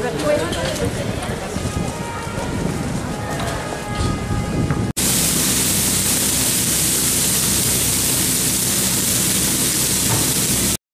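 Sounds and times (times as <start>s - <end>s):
crowd noise: 0.0s - 4.9s
meat sizzling on a griddle: 5.0s - 10.8s.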